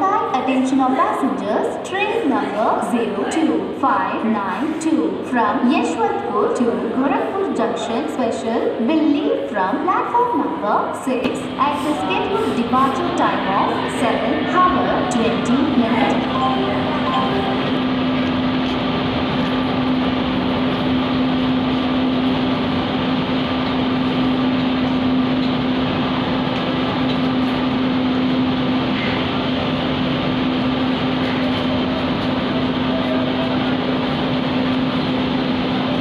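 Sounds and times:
constant low hum: 0:00.0 - 0:36.0
train coaches rolling past: 0:09.3 - 0:36.0.

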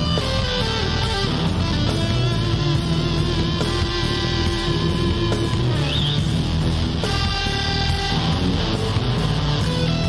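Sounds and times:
instrumental rock music with guitar: 0:00.0 - 0:10.0.

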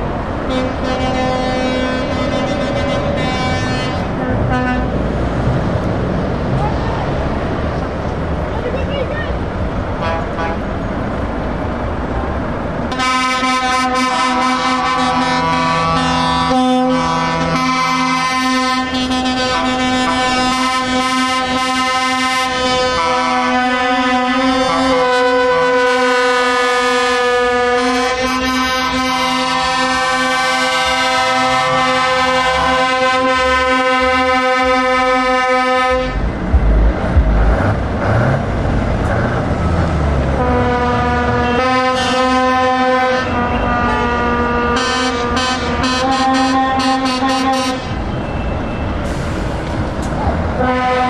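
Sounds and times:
truck air horn blast: 0:00.5 - 0:05.0, 0:10.0 - 0:10.7, 0:12.9 - 0:38.4, 0:40.3 - 0:49.7, 0:50.6 - 0:51.0
truck engine pulling away: 0:35.2 - 0:41.4, 0:48.8 - 0:50.6.

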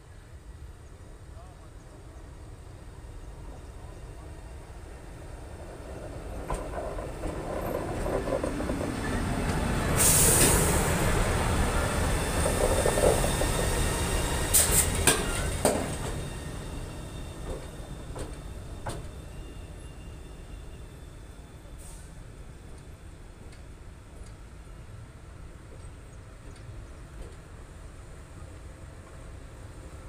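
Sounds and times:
electric locomotive passing: 0:00.3 - 0:30.0
wheels clacking on rails: 0:04.2 - 0:19.8, 0:25.5 - 0:27.9
brief sharp hiss: 0:10.0 - 0:10.8.

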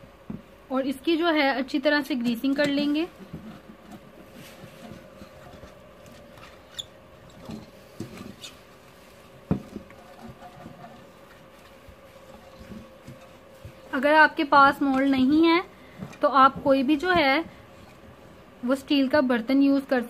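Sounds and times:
faint steady hum: 0:00.0 - 0:20.0
pastry brush brushing: 0:07.7 - 0:18.5.

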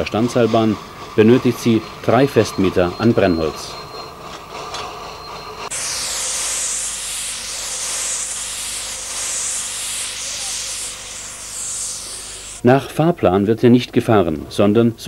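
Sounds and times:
steam locomotive hissing: 0:05.6 - 0:12.6.

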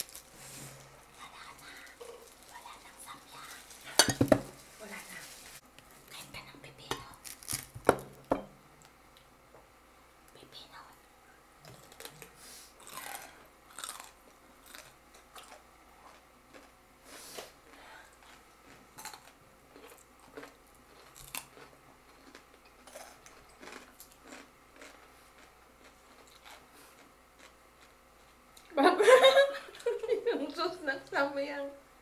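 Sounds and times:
cucumber crunching: 0:07.2 - 0:07.8, 0:11.7 - 0:16.7, 0:18.2 - 0:27.9.

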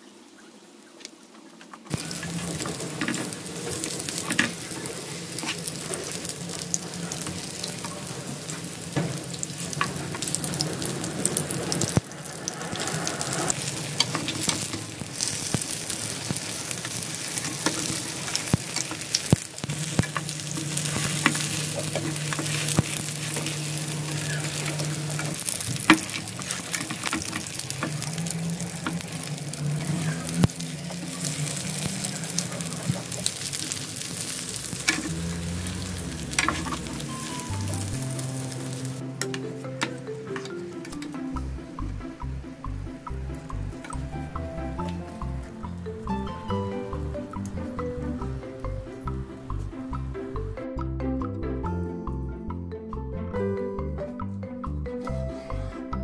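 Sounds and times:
food sizzling in a frying pan: 0:01.9 - 0:40.0
spatulas scraping and tapping pan: 0:12.6 - 0:37.2.

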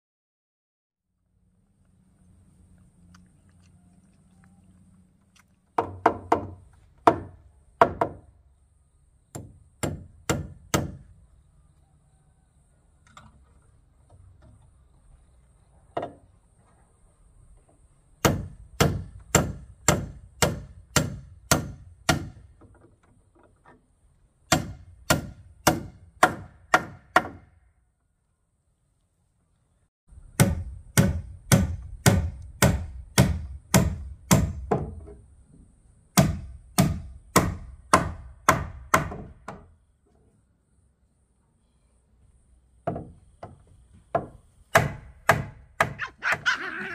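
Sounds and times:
tool striking wood: 0:05.8 - 0:08.3, 0:09.3 - 0:11.1, 0:18.2 - 0:22.8, 0:24.5 - 0:27.6, 0:30.3 - 0:35.2, 0:36.1 - 0:39.7, 0:42.8 - 0:46.4.

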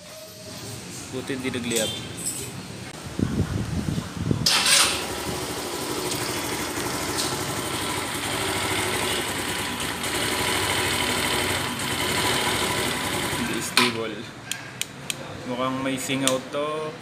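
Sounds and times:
scooter engine starting: 0:04.4 - 0:13.9
scooter engine idling unevenly: 0:04.6 - 0:13.8.

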